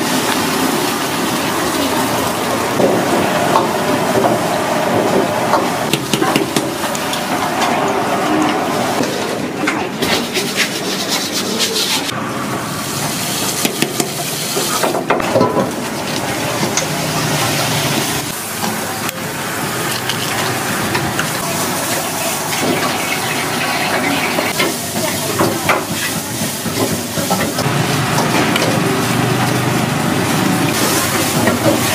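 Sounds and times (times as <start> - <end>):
running and splashing water: 0.0 - 5.7, 15.7 - 31.9.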